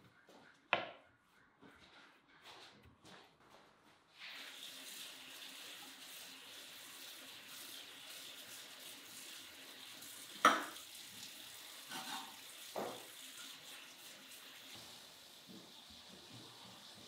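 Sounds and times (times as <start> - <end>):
tap water running into sink: 4.2 - 17.0
pots clanking in metal sink: 10.4 - 10.8, 11.8 - 13.2.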